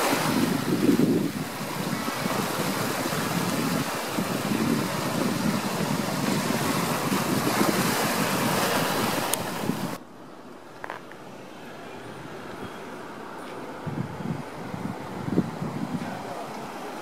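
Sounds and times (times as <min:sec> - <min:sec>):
ocean surf rushing: 0:00.0 - 0:10.0
wind buffeting microphone: 0:00.0 - 0:10.0, 0:13.6 - 0:17.0.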